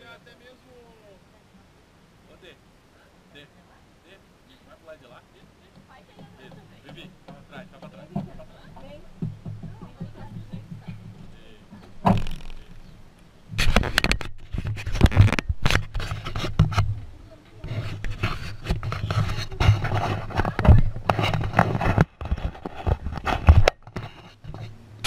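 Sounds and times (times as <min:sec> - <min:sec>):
steady low hum: 0:00.0 - 0:25.0
camera knocking and scraping: 0:05.8 - 0:24.8.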